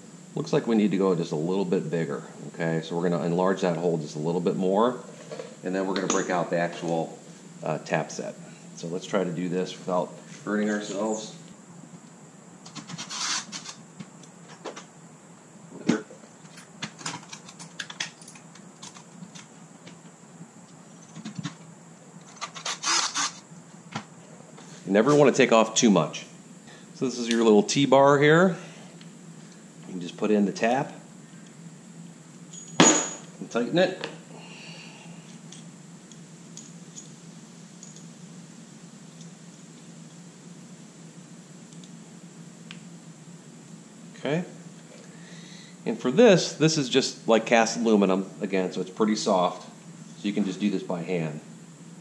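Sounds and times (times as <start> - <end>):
faint steady hum: 0.0 - 52.0
drill and bits clicking and knocking: 22.2 - 23.4.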